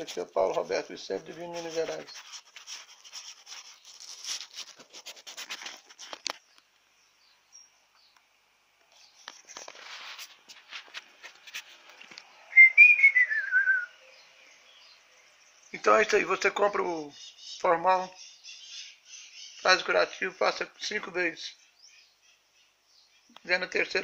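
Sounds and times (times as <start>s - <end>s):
wavering falling whistle: 12.5s - 13.9s.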